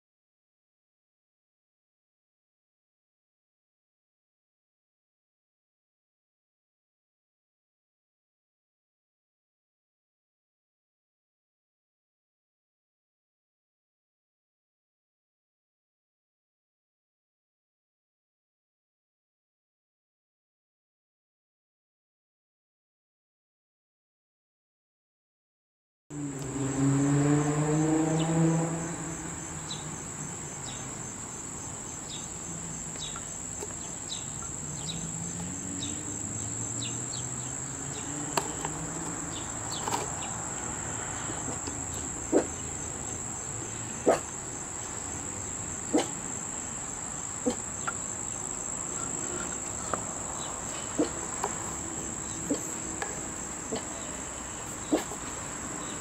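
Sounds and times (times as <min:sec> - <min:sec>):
insects singing: 0:26.2 - 0:56.0.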